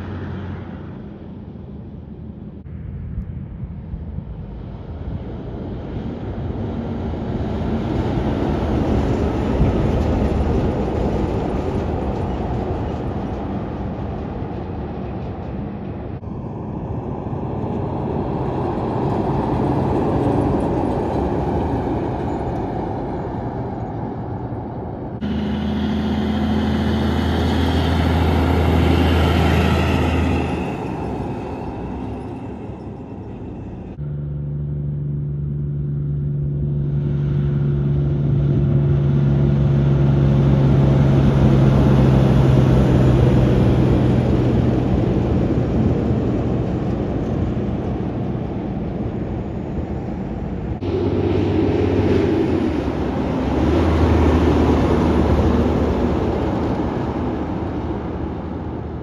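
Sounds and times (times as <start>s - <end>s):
diesel trucks driving past: 0.0s - 59.0s.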